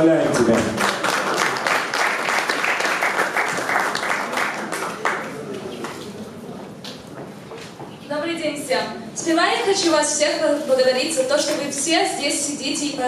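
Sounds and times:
audience applauding: 0.3s - 6.0s.

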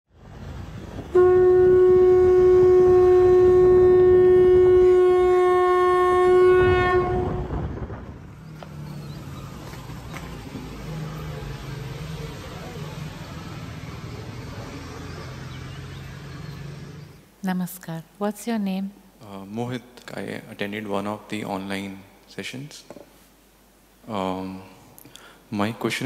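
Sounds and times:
vehicle engine hum: 0.1s - 17.3s
street background noise: 0.1s - 18.9s
conch shell blown: 1.1s - 7.6s.

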